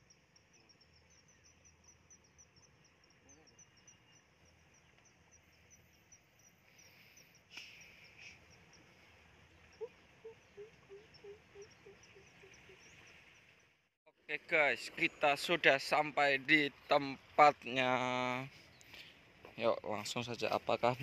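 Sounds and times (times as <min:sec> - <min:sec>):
insects chirping: 0:00.0 - 0:13.8.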